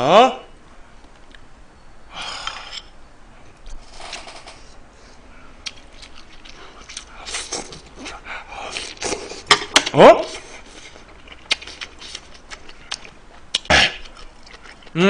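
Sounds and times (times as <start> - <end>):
slurping and chewing: 5.6 - 15.0.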